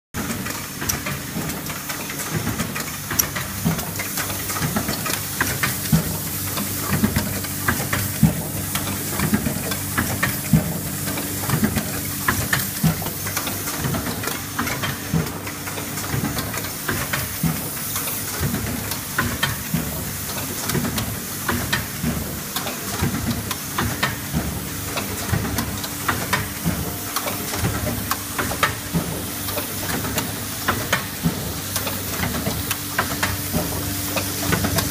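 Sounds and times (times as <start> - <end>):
machine mechanism clicking: 0.2 - 8.1
machine feeders humming: 0.3 - 34.9.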